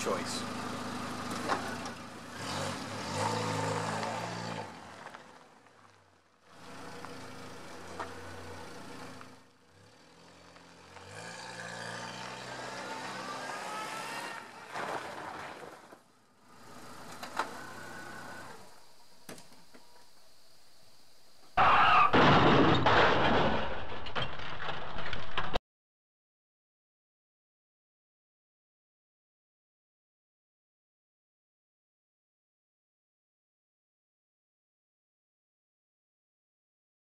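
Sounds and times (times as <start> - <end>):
car engine accelerating: 0.0 - 19.3
tyres on gravel: 0.0 - 20.2, 21.4 - 25.6.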